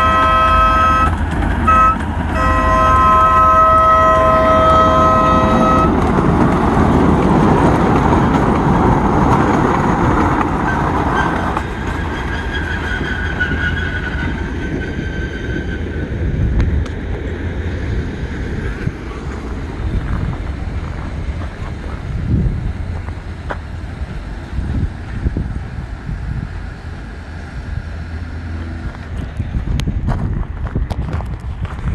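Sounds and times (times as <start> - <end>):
train horn chord: 0.0 - 6.0
train wheels rumbling on track: 0.0 - 31.9.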